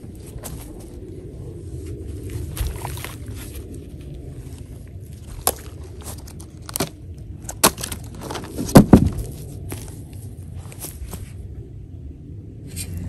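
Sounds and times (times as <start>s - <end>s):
low rumble: 0.0s - 13.0s
wood knocking and thudding: 7.6s - 9.4s.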